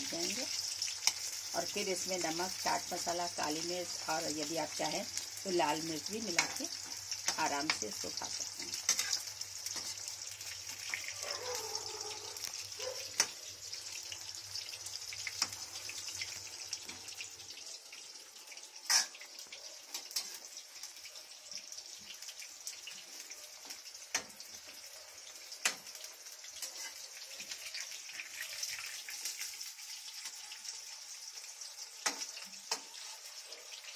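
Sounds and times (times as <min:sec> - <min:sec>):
hot oil sizzling: 0:00.0 - 0:33.9.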